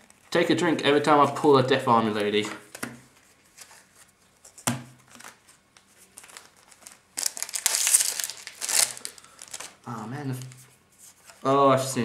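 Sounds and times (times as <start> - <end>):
foil wrapper crinkling: 5.0 - 10.6.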